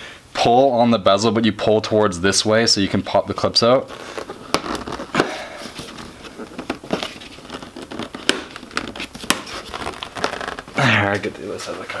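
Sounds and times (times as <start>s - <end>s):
plastic creaking and rustling: 3.5s - 12.0s.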